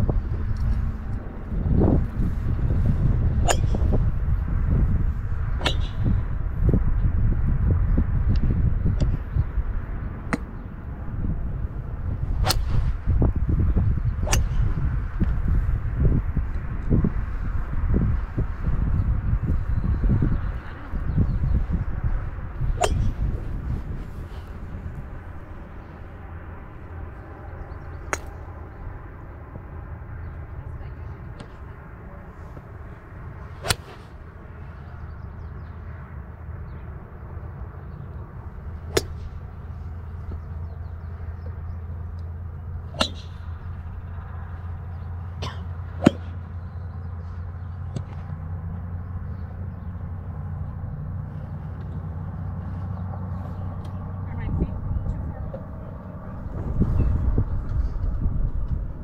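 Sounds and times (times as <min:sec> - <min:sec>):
steady low rumble: 0:00.0 - 0:59.0
golf clubs striking balls: 0:03.3 - 0:04.1, 0:05.6 - 0:06.4, 0:10.2 - 0:10.5, 0:12.4 - 0:12.8, 0:14.2 - 0:15.4, 0:22.6 - 0:23.4, 0:28.0 - 0:28.4, 0:33.6 - 0:34.0, 0:38.7 - 0:39.5, 0:41.4 - 0:44.0, 0:44.6 - 0:48.4.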